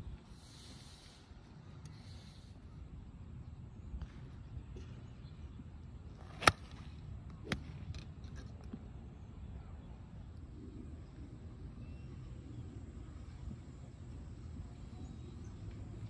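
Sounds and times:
low background noise: 0.0 - 16.0
golf club striking ball: 6.2 - 6.8.

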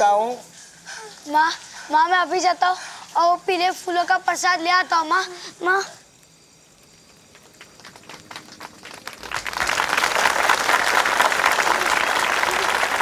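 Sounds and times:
audience applause: 7.3 - 13.0.

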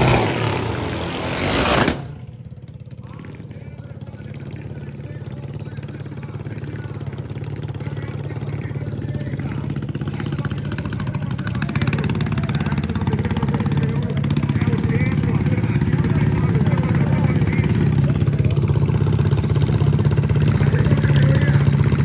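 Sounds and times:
small engine idling: 0.0 - 22.0.

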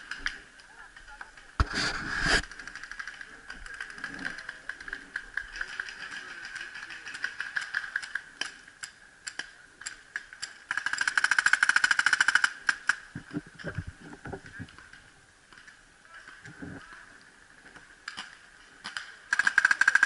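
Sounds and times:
paintball markers firing: 18.1 - 20.0.

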